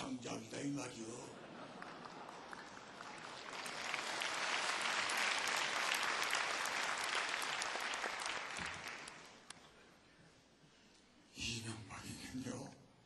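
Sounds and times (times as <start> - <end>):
audience applauding: 1.5 - 9.5.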